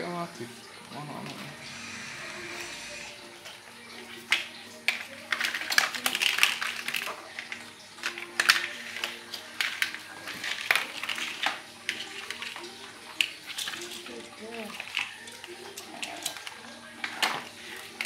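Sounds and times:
plastic toy track pieces clattering: 0:04.2 - 0:18.0.

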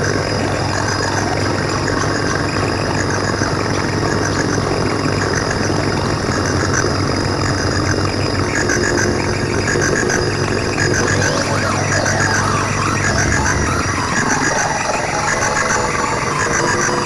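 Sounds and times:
low buzzing synthesizer drone: 0:04.6 - 0:17.0
high synthesizer chirps: 0:10.5 - 0:17.0.

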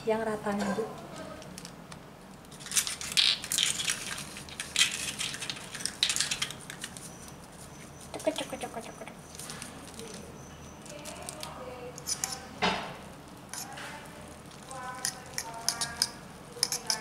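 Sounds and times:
fingers crumbling dry food: 0:02.4 - 0:07.1, 0:09.3 - 0:12.5, 0:13.2 - 0:17.0.

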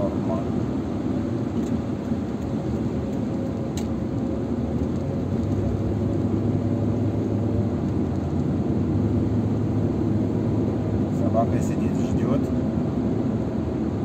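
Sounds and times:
car engine and tyre noise: 0:00.0 - 0:14.0.

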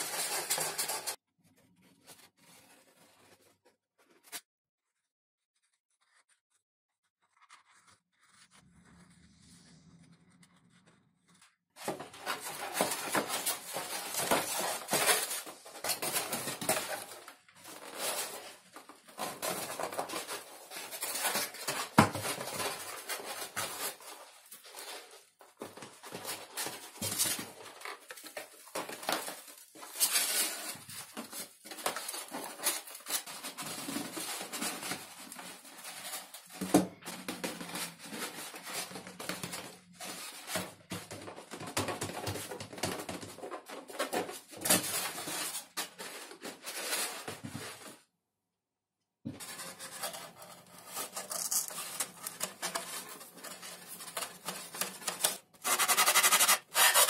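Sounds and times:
hands rubbing and scratching foam: 0:00.0 - 0:11.4.

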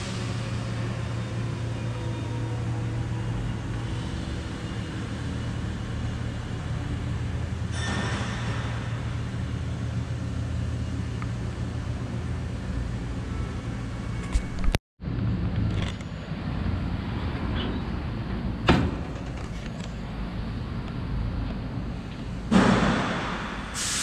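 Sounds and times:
brief hiss: 0:23.7 - 0:24.0.

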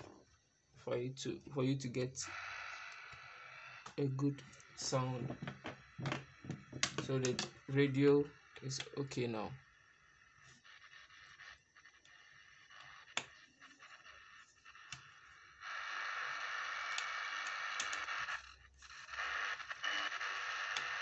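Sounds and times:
radio static hiss: 0:00.8 - 0:21.0
radio set click: 0:03.8 - 0:07.6, 0:08.6 - 0:09.4, 0:14.7 - 0:18.4, 0:19.2 - 0:21.0.

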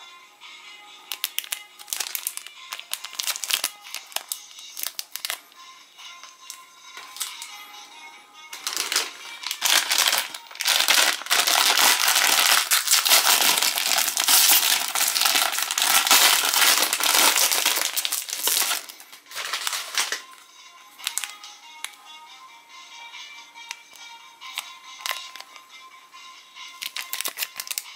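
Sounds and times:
snack wrapper crinkling: 0:01.1 - 0:05.4, 0:08.6 - 0:20.3, 0:21.0 - 0:21.9, 0:23.7 - 0:25.6, 0:26.8 - 0:27.9.

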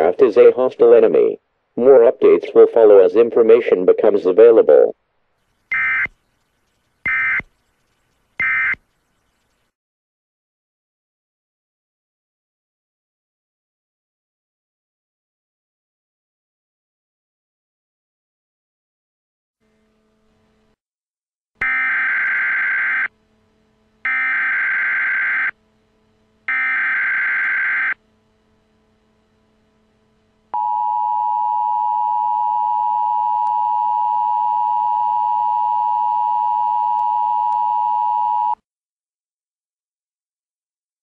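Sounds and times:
harsh data-burst tones: 0:05.7 - 0:09.6.

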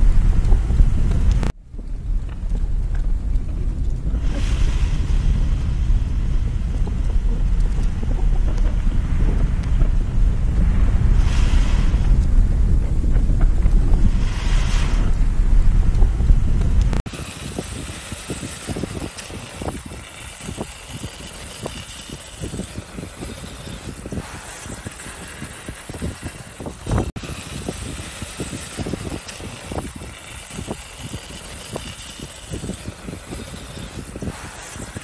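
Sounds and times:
lava rumbling and popping: 0:00.0 - 0:35.0
steady hiss: 0:14.0 - 0:35.0.

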